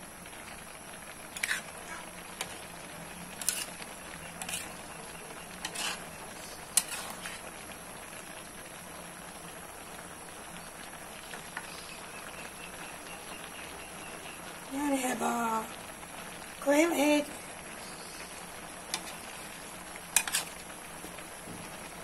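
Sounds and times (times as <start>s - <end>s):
food sizzling in a wok: 0.0s - 22.0s
metal spatula scraping pan: 1.4s - 2.6s, 3.3s - 7.4s, 20.2s - 20.6s.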